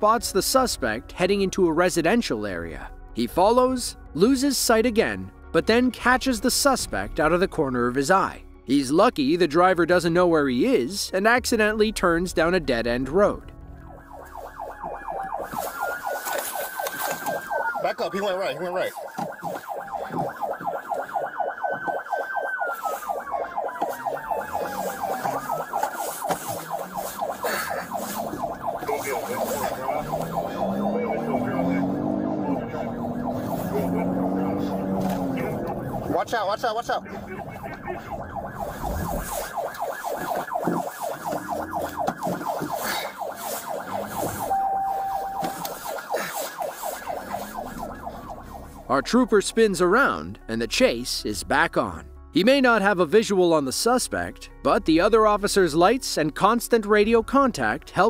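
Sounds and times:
wailing siren: 0:13.7 - 0:49.2
police siren yelping: 0:13.8 - 0:49.4
short steady beep: 0:44.5 - 0:45.6.

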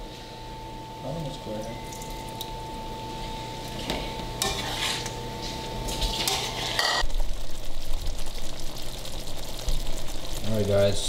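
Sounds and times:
utensil scraping a pot: 0:03.8 - 0:05.2, 0:06.0 - 0:07.0.

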